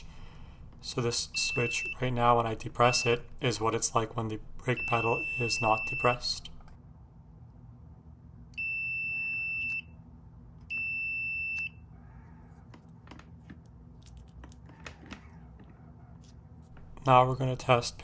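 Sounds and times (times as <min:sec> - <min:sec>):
multimeter continuity beep: 0:01.3 - 0:02.2, 0:02.8 - 0:03.4, 0:04.7 - 0:06.4, 0:08.6 - 0:09.9, 0:10.7 - 0:11.8.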